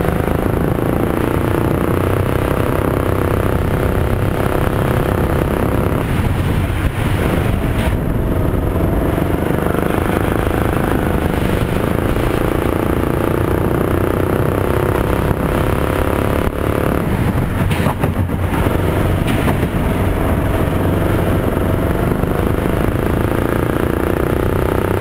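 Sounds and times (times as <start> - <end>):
kart engine running hard: 0.0 - 25.0.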